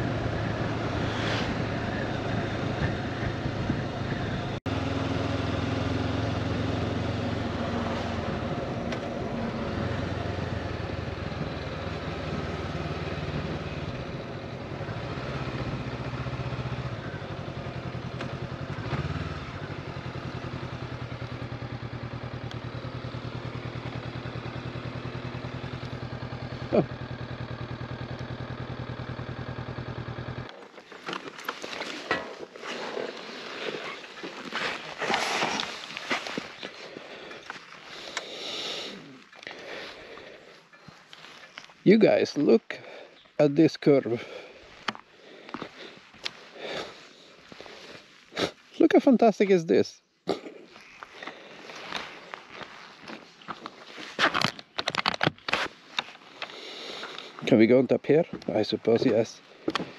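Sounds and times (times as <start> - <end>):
motorcycle engine running: 0.0 - 34.6.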